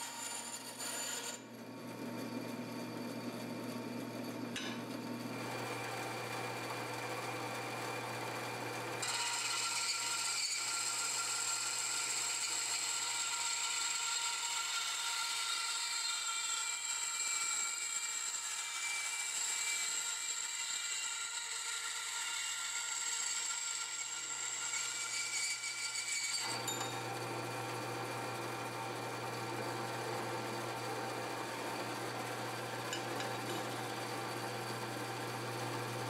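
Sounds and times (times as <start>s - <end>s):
saw blade rasping through steel: 0.0s - 1.5s, 8.7s - 36.0s
bandsaw motor hum: 0.0s - 16.0s, 17.8s - 36.0s
high whine of blade cutting pipe: 0.0s - 36.0s.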